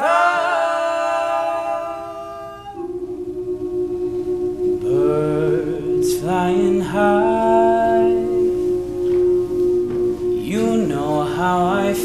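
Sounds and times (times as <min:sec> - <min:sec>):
male a cappella group singing: 0:00.0 - 0:02.8.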